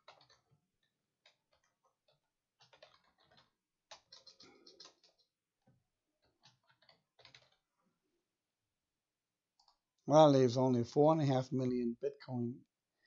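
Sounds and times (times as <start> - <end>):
keyboard typing: 0.0 - 0.4, 2.6 - 5.3.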